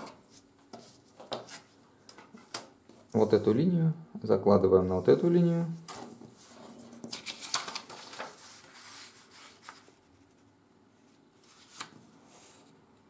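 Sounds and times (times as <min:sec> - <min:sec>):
paper rustling and crinkling: 0:05.9 - 0:10.4, 0:11.4 - 0:12.6.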